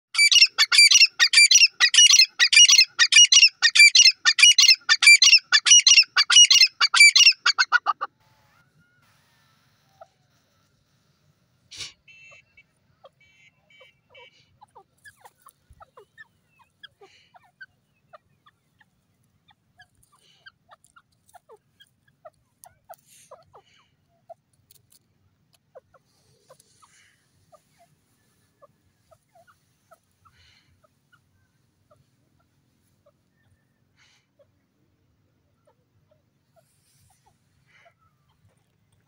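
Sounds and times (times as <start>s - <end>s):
bird chirping and clucking: 0.2s - 9.0s, 12.1s - 24.8s, 25.5s - 34.7s.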